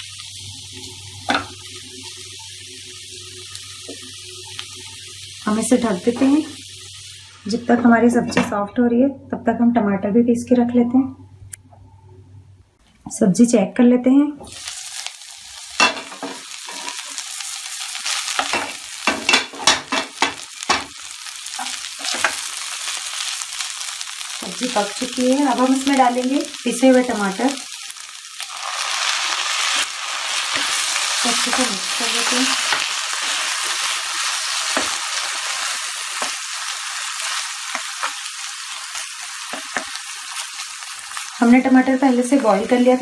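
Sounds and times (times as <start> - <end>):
vegetables sizzling in a pan: 0.0 - 8.4, 14.4 - 43.0
spatula scraping and tapping pan: 18.4 - 20.9.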